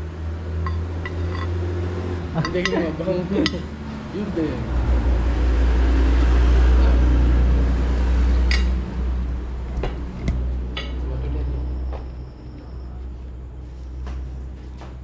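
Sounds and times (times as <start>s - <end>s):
tableware clinks: 0.7s - 1.6s.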